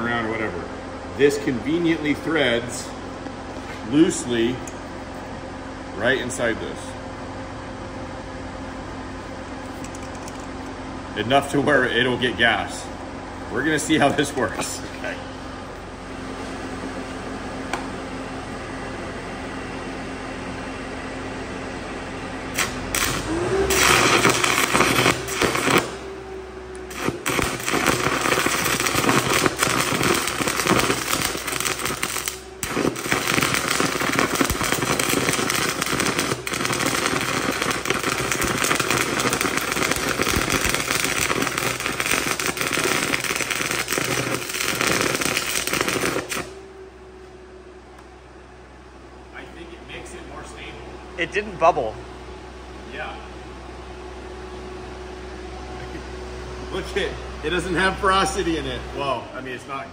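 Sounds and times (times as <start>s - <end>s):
welder engine humming: 0.0s - 5.4s, 19.8s - 48.3s, 49.4s - 59.9s
crackling welding arc: 22.5s - 26.1s, 26.8s - 46.6s.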